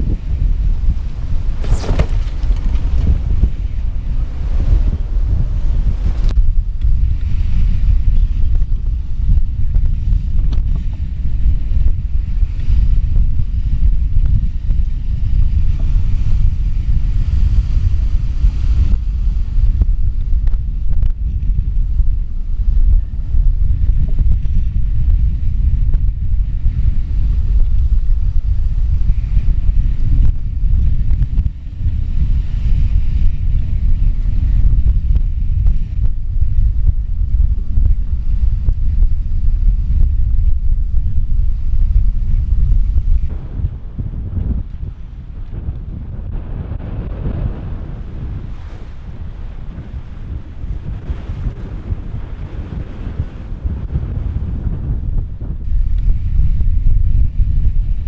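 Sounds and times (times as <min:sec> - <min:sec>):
water rushing along hull: 0:00.0 - 0:13.5, 0:43.3 - 0:54.5
strong wind rumbling on microphone: 0:00.0 - 0:58.0.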